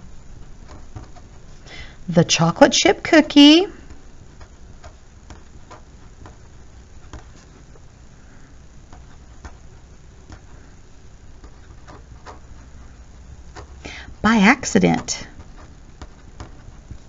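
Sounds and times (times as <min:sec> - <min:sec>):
pen scratching on paper: 0:11.4 - 0:13.8, 0:14.9 - 0:17.0.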